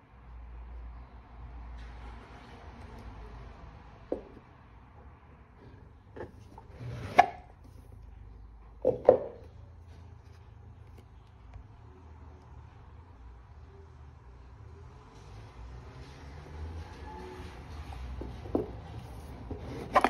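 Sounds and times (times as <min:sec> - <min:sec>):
box sliding scrape: 0:06.2 - 0:07.9, 0:19.0 - 0:20.0.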